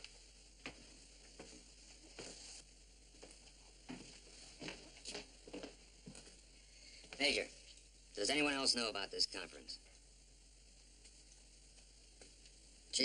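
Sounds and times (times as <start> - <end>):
soft knocks and shuffles: 0.0 - 7.4
faint steady hiss: 0.0 - 13.0.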